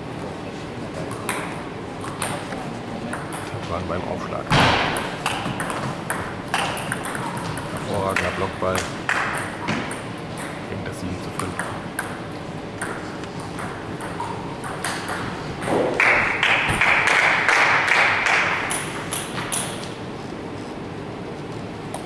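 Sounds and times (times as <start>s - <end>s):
table tennis balls clicking: 1.1s - 3.6s, 5.0s - 10.6s, 11.3s - 20.0s.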